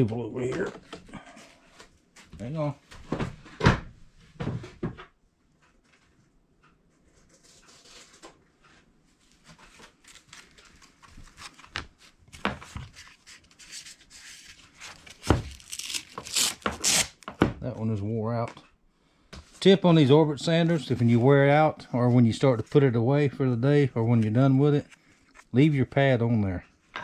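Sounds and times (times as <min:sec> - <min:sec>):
sanding disc tearing off: 0:15.7 - 0:17.2.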